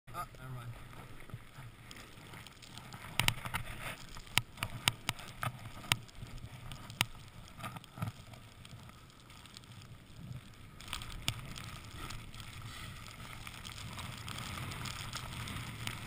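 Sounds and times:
sharp clicks and knocks: 3.1s - 6.0s
snowboard sliding through snow: 9.8s - 16.0s.

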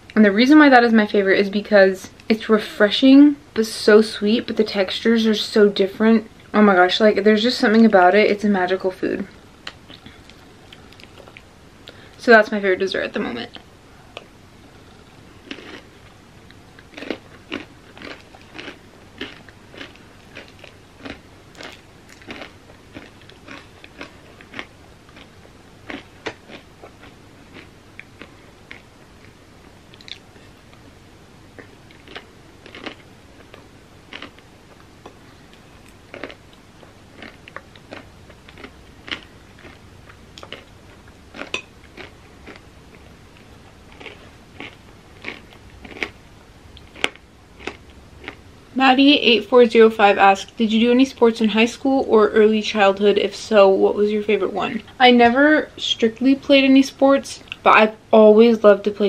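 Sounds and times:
chewing with wet mouth clicks: 9.6s - 11.5s, 25.9s - 30.8s, 35.8s - 46.2s.

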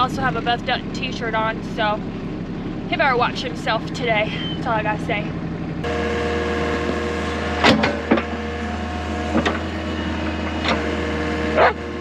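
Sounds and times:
excavator engine humming: 0.0s - 12.0s
bucket clanking and scraping: 6.7s - 8.4s.

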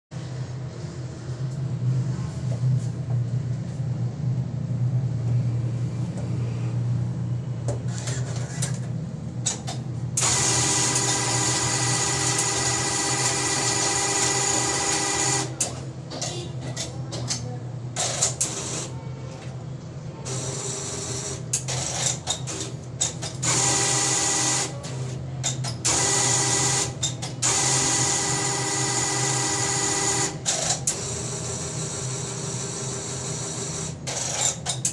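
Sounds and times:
constant low hum: 0.2s - 10.3s
cash dispenser mechanism whirring: 7.8s - 34.9s.

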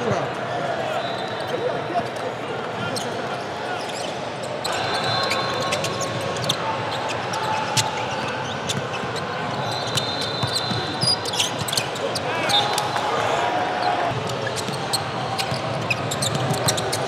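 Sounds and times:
sneaker squeaks: 2.9s - 12.8s, 13.8s - 17.0s.

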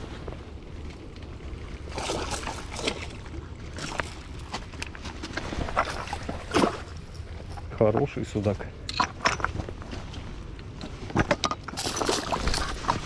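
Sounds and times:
fish splashing in water: 1.8s - 4.0s.

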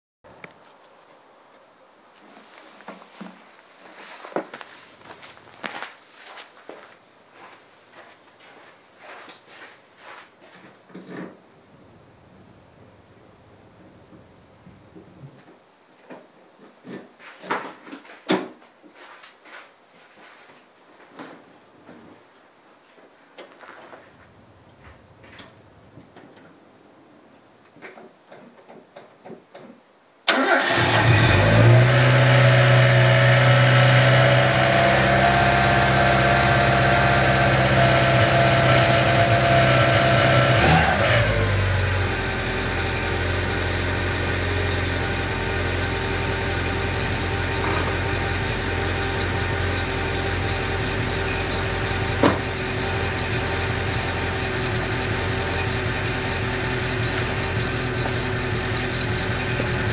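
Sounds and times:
car engine starting: 30.3s - 59.9s
car engine idling: 32.2s - 59.9s.

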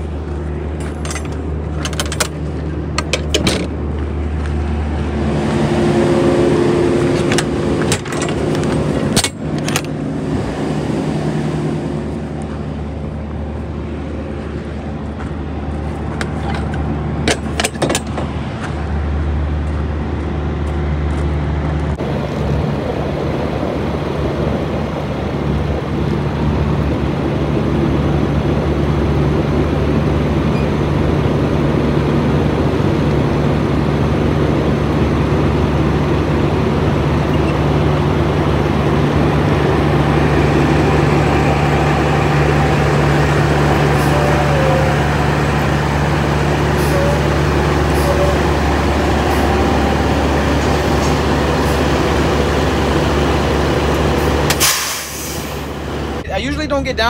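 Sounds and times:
diesel truck engine idling: 0.0s - 57.0s
metal door clanks and rattles: 0.8s - 3.8s, 7.1s - 10.0s, 16.1s - 18.4s.

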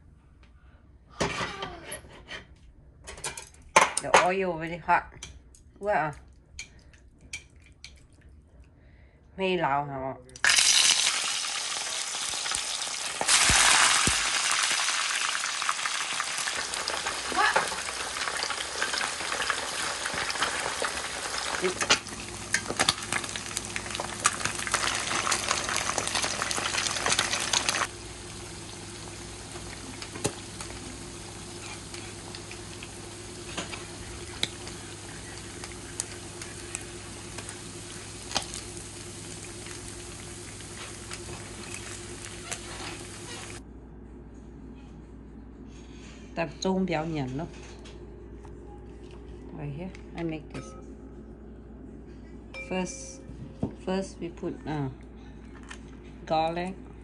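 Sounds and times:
fish sizzling in hot oil: 10.4s - 43.6s.

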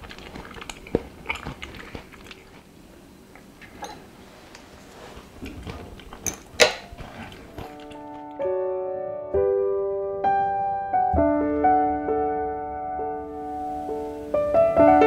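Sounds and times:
gentle solo piano: 7.7s - 15.0s.

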